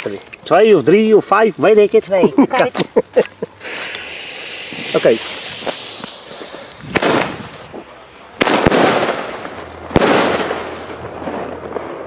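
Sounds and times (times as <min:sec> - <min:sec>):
firework hiss: 0:03.5 - 0:11.2
firework shells banging: 0:03.6 - 0:12.0.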